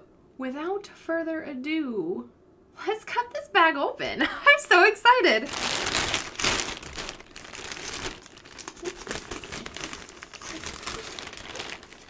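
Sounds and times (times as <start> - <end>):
plastic bag crinkling: 5.3 - 12.0
scissors cutting plastic: 7.7 - 12.0.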